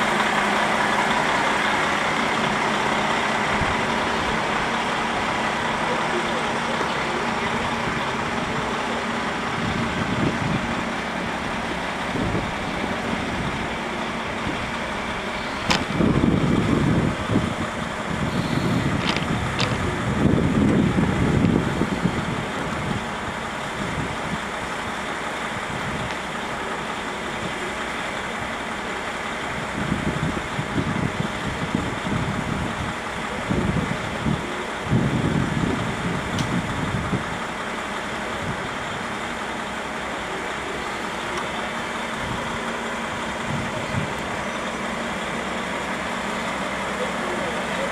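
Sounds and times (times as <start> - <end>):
diesel railcar engine rumbling: 0.0 - 47.9
sharp click: 15.6 - 15.9.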